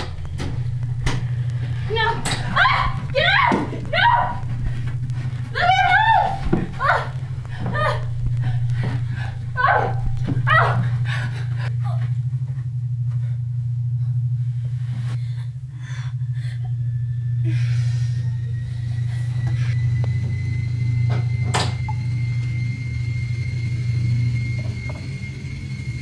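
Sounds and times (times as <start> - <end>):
low rumbling drone: 0.0 - 26.0.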